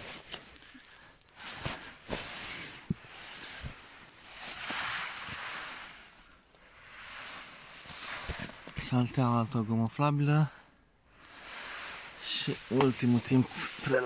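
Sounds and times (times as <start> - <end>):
fabric rustling: 0.0 - 9.2, 11.2 - 14.0.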